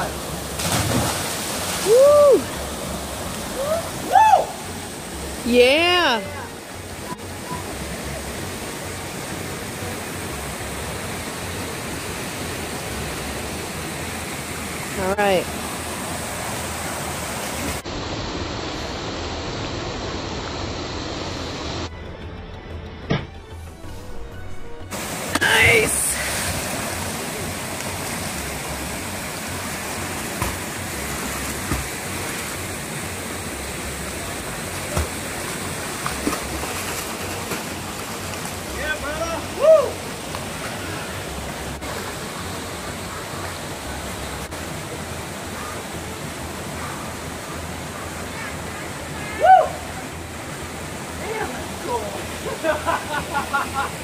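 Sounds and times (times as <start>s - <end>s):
creek pouring into pool: 0.0s - 5.1s, 24.9s - 54.0s
waterfall rushing: 0.0s - 21.9s, 24.9s - 54.0s
sharp knocks or splashes: 0.6s - 1.8s, 30.3s - 30.7s, 31.4s - 32.0s.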